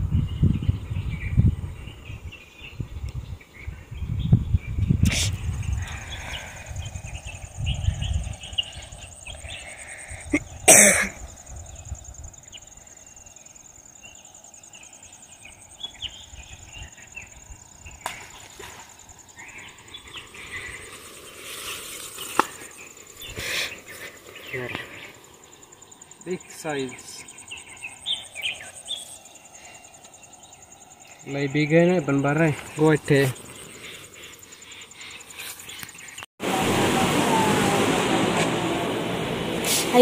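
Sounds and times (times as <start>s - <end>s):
high insect trill: 5.1s - 38.7s
leaves and branches rustling: 14.2s - 40.0s.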